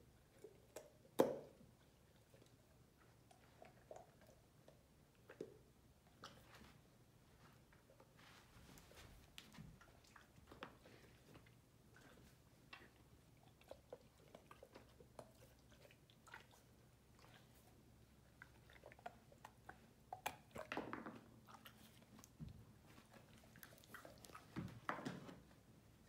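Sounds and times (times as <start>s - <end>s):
puppy crunching carrot: 9.8s - 24.8s.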